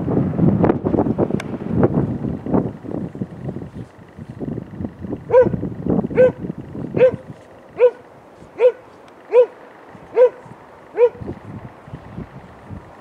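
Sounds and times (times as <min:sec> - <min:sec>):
dog barking: 0:05.3 - 0:05.6, 0:06.2 - 0:06.4, 0:07.0 - 0:07.2, 0:07.8 - 0:08.0, 0:08.6 - 0:11.2.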